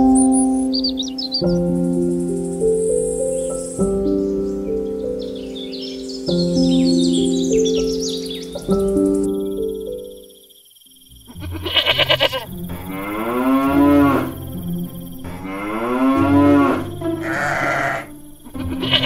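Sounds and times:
goat bleating: 11.3s - 12.9s, 17.2s - 19.0s
cow mooing: 11.4s - 14.4s, 15.2s - 19.0s.

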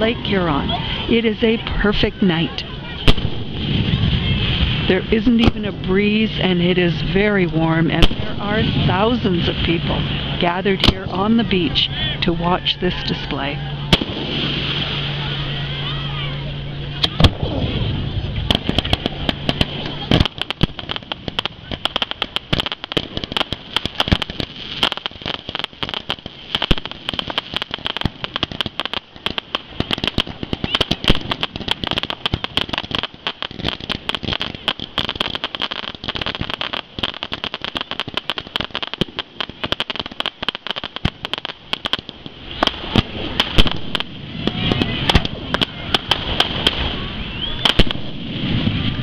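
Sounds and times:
fireworks bangs and crackles: 0.0s - 49.0s.

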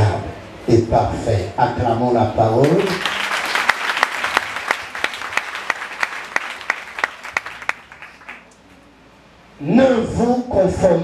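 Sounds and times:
congregation applauding: 2.6s - 8.8s
loud evenly timed claps: 2.6s - 8.8s.

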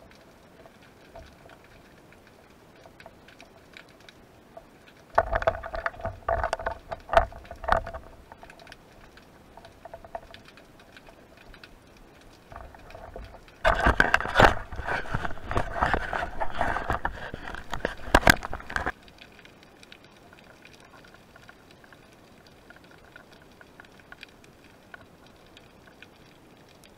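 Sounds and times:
underwater crackle of clicks: 0.0s - 26.9s
water splashing and sloshing: 0.0s - 26.9s.

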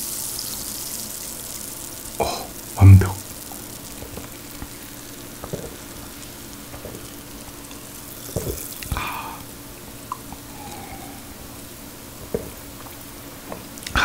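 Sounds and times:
sparkling water fizzing: 0.0s - 13.9s
soft swallowing: 2.2s - 3.3s.

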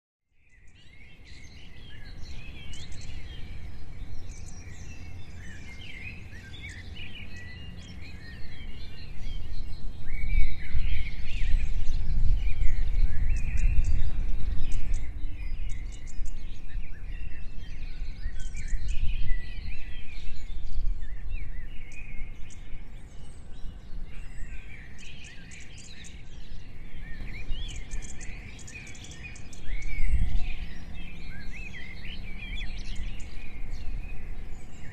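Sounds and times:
songbirds chirping and trilling: 0.3s - 34.9s.

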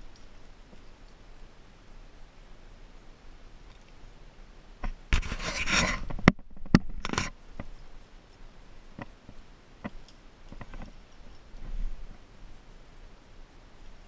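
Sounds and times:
rope rustling and scraping: 4.8s - 12.6s.

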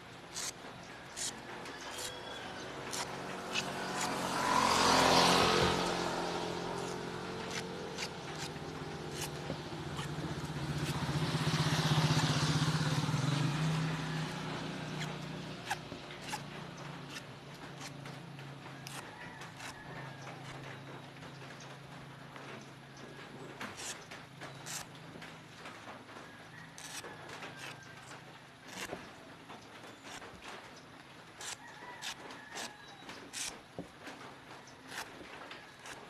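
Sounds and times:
vehicles passing by: 0.0s - 36.0s.

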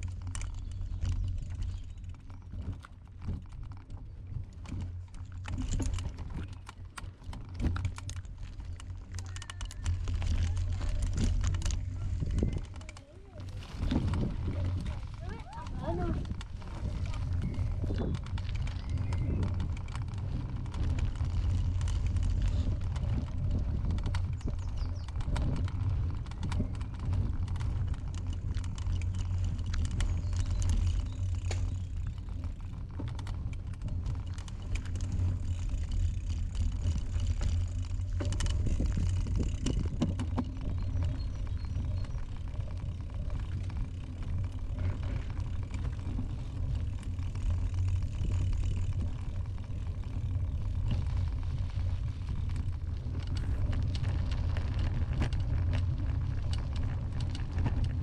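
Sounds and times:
bike clicks and rattles: 0.0s - 58.0s
wind on microphone: 9.1s - 58.0s.

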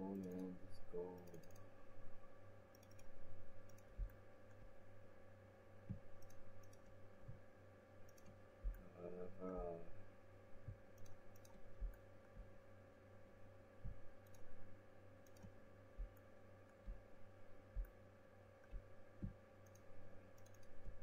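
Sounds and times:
steady low hum: 0.0s - 21.0s
computer mouse clicking: 0.1s - 1.7s, 2.7s - 4.7s, 5.9s - 7.0s, 8.0s - 8.8s, 10.7s - 12.0s, 13.9s - 14.6s, 15.2s - 17.0s, 18.6s - 21.0s
soft low thumps: 3.4s - 4.8s, 5.8s - 6.2s, 7.2s - 7.5s, 8.6s - 8.9s, 11.6s - 12.5s, 13.8s - 14.6s, 15.9s - 16.2s, 16.8s - 18.0s, 18.6s - 19.4s.

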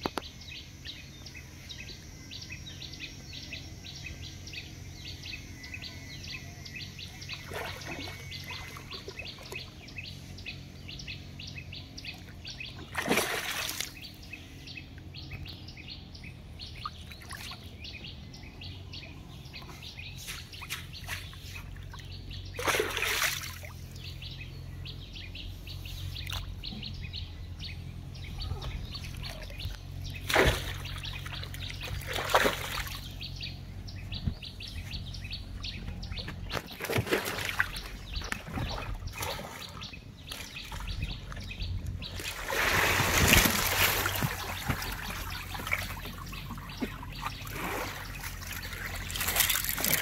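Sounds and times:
water splashing and dripping off net: 12.9s - 14.0s, 22.6s - 23.8s, 30.2s - 33.1s, 36.5s - 40.8s, 42.2s - 50.0s
rush of water pouring: 42.4s - 45.7s.

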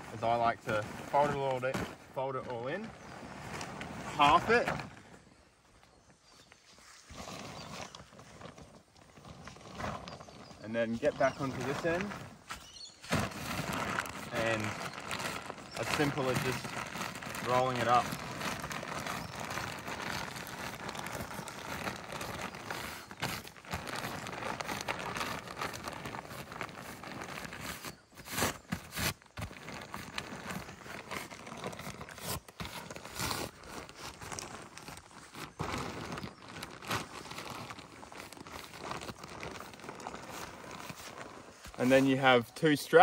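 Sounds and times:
fabric crinkling and rustling: 0.0s - 43.0s
fabric crackles: 6.6s - 43.0s.

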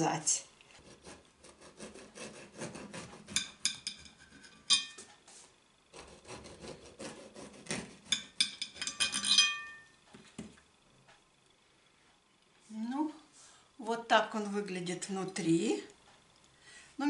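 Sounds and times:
knife sawing through bread: 0.7s - 3.5s, 5.9s - 8.2s.

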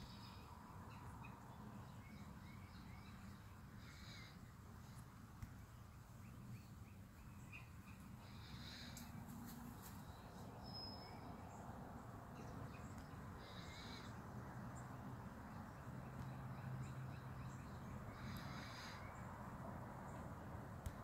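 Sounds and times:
faint bird calls: 0.0s - 5.6s, 6.2s - 11.6s, 12.4s - 14.9s, 16.1s - 19.3s.

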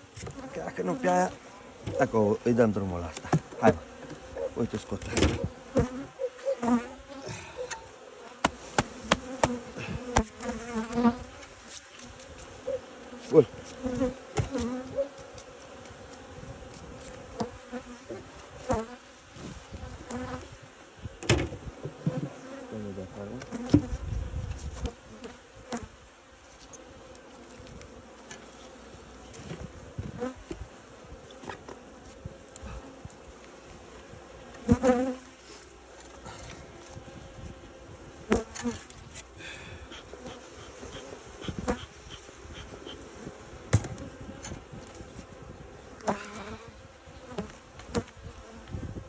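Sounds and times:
honeybees buzzing: 0.0s - 49.0s
wooden hive frames clicking: 3.1s - 6.0s.

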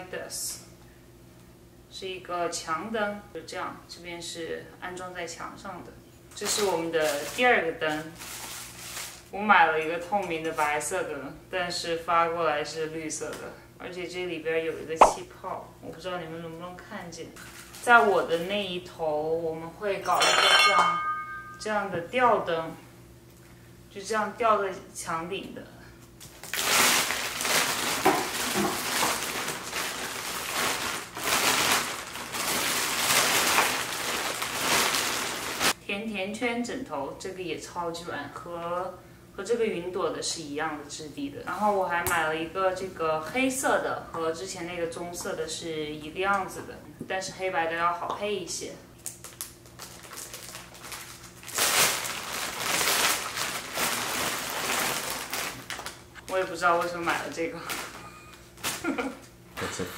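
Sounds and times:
plastic bag crinkling: 6.5s - 9.3s, 26.3s - 35.8s, 49.0s - 59.2s.

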